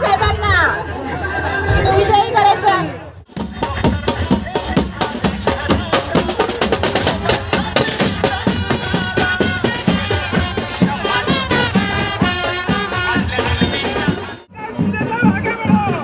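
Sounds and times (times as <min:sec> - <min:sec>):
large drum beating: 0:03.3 - 0:16.0
saxophones and trumpets melody: 0:07.8 - 0:14.5.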